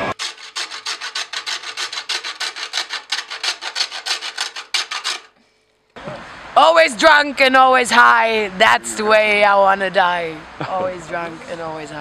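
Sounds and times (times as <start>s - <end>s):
nuts scraping on metal grater: 0.1s - 5.4s.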